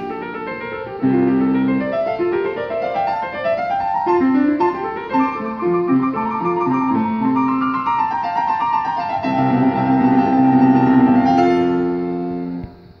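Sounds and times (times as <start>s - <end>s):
two pianos playing a duet: 0.0s - 13.0s.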